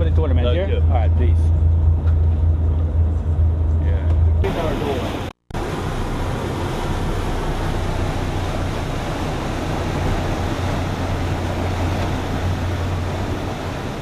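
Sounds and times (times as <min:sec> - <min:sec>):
boat engines droning: 0:00.0 - 0:14.0
wake rushing: 0:00.0 - 0:14.0.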